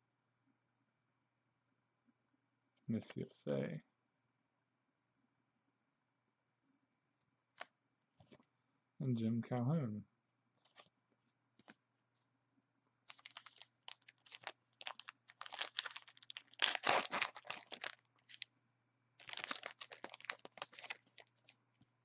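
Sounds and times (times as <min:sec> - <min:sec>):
wrapper tearing and crinkling: 0:13.1 - 0:18.5, 0:19.2 - 0:21.6.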